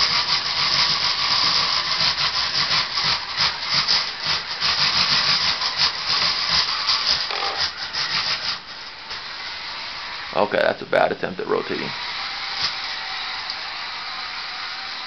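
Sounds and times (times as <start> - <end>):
robot wheels rattling on linoleum: 0.0 - 8.6.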